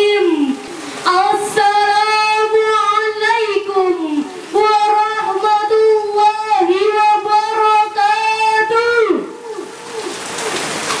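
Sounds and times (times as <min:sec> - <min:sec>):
noise hiss: 0:00.0 - 0:06.2
woman singing through a microphone: 0:00.0 - 0:09.4.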